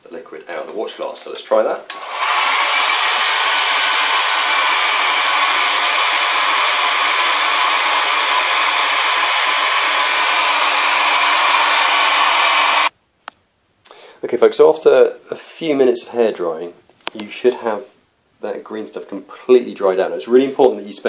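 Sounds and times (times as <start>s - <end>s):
hairdryer blowing air: 1.9s - 12.9s.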